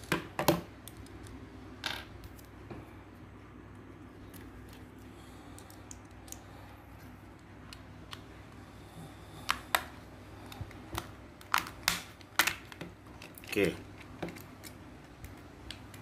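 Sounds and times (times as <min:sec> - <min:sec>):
low steady hum: 0:00.0 - 0:16.0
plastic case clicking and snapping: 0:10.9 - 0:16.0.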